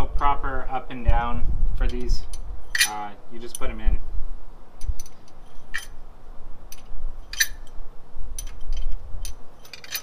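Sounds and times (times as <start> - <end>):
metal pushrods clinking: 2.7 - 3.7, 4.9 - 6.0, 6.7 - 7.7, 8.4 - 10.0.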